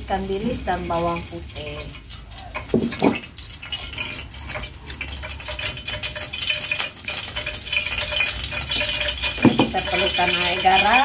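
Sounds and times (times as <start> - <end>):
oil sizzling in a pot: 0.0 - 11.0
knock or scrape: 2.8 - 3.2.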